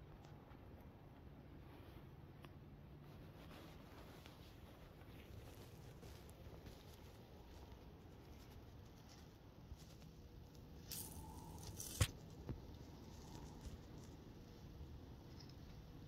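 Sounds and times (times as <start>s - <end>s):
dry leaves crunching and rustling: 10.8s - 12.1s.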